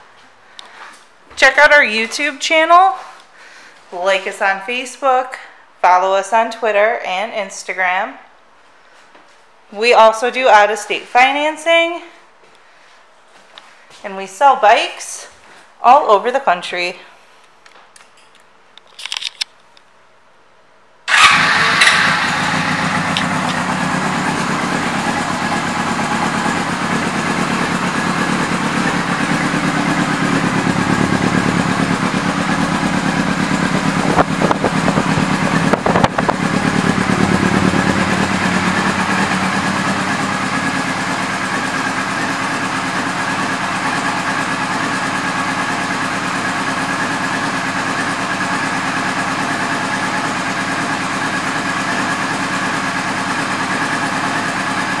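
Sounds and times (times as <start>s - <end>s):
motorcycle engine idling: 21.1s - 55.0s.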